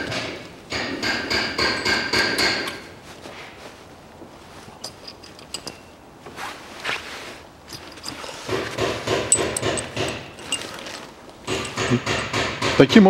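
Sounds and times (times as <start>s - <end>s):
clattering handling noise: 0.1s - 12.7s
metal tools clinking: 1.6s - 2.9s, 4.6s - 6.1s, 7.6s - 12.4s.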